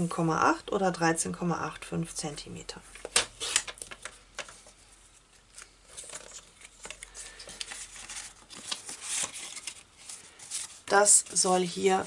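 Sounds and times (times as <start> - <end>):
paper rustling: 3.4 - 12.0.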